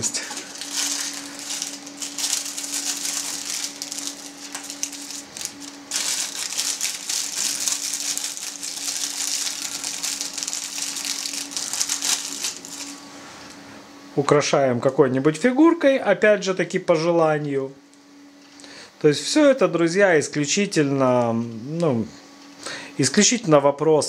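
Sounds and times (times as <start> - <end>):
plastic bag crinkling: 0.0 - 13.1.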